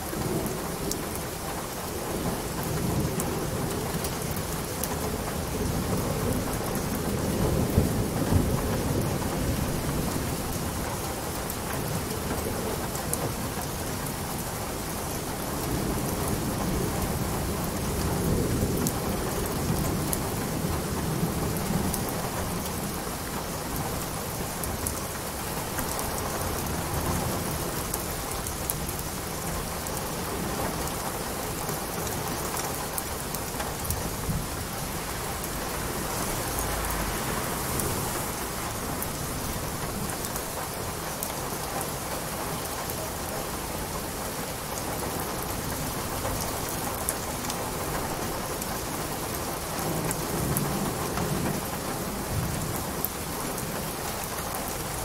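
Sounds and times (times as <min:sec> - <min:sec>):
steady rain falling: 0:00.0 - 0:55.0
low rumbles of thunder: 0:05.2 - 0:10.8.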